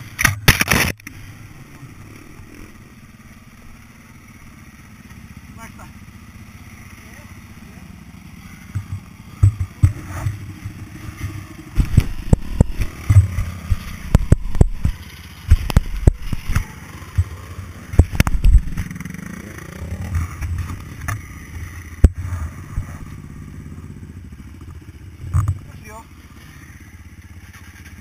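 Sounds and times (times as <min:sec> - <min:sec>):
dirt bike engine running: 0:00.0 - 0:28.0
sharp knocks and clatter: 0:08.7 - 0:19.1, 0:20.0 - 0:22.9, 0:24.6 - 0:25.7.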